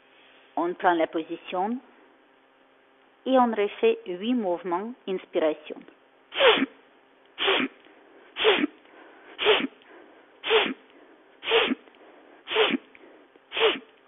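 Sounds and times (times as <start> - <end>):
woman sharply inhaling through nose: 6.3 - 6.7, 7.4 - 13.9
woman exhaling through mouth: 7.4 - 7.8, 8.4 - 8.8, 9.4 - 9.8, 10.4 - 10.8, 11.4 - 11.8, 12.5 - 12.9, 13.5 - 13.9.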